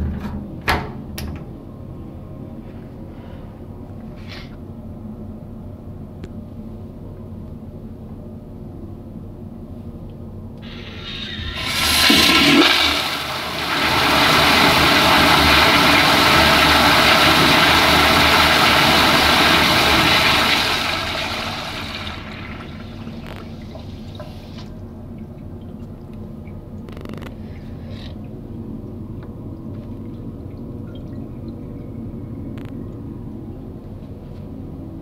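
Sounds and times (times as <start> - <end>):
toilet flushing: 10.6 - 25.8
water trickling: 20.6 - 26.9, 29.5 - 31.8.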